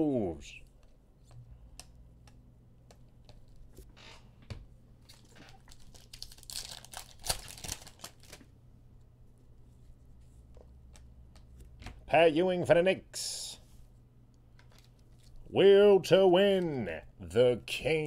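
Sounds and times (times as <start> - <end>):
trading cards rustling and clicking: 5.0 - 8.5, 14.6 - 15.4.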